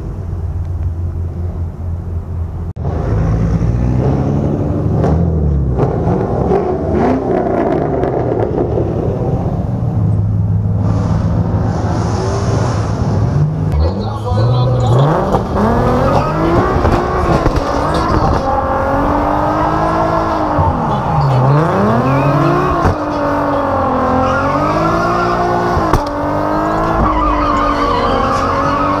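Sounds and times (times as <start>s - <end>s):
car engine revving: 0.0s - 29.0s
tyres squealing: 14.1s - 29.0s.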